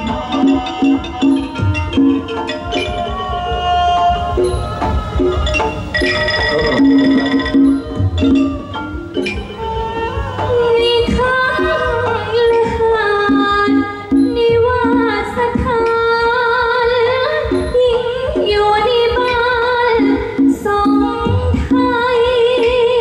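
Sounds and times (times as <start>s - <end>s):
instrumental accompaniment: 0.0s - 23.0s
woman singing into microphone: 7.5s - 23.0s.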